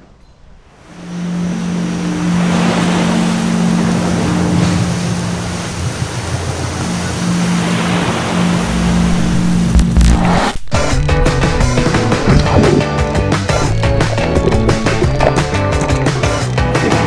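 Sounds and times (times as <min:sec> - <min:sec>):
low hum: 0:00.2 - 0:17.0
ocean surf washing on beach: 0:00.7 - 0:10.6.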